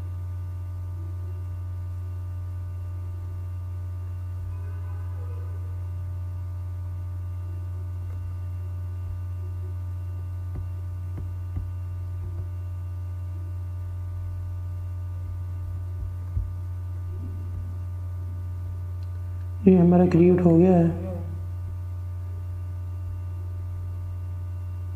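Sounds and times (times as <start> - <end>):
low electrical hum: 0.0 - 24.9.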